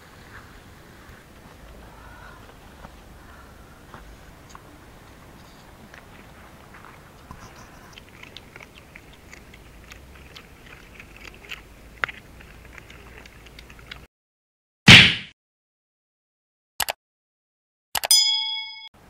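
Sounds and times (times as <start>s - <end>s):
dogs chewing and crunching food: 5.2s - 14.1s.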